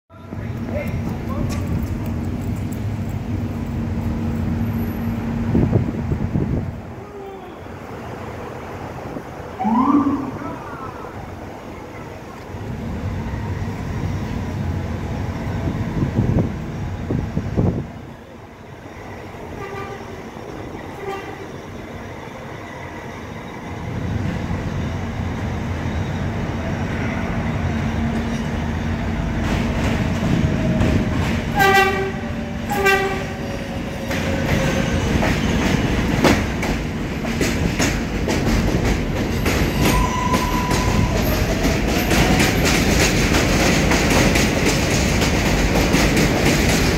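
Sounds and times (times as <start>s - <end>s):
subway train wheels rumbling: 0.1s - 46.9s
falling whine: 9.6s - 11.3s
train horn short blasts: 19.6s - 20.1s, 31.6s - 33.4s.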